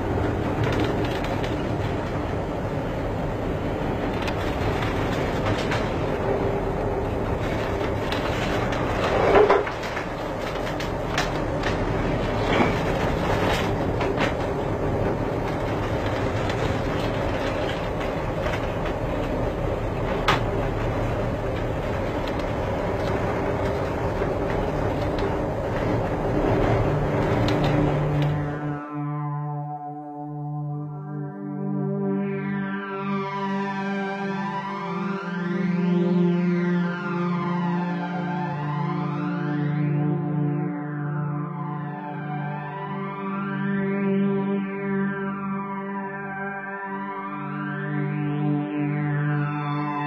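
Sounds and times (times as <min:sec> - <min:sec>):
ship engine rumbling: 0:00.0 - 0:29.3
low hum: 0:00.0 - 0:50.0.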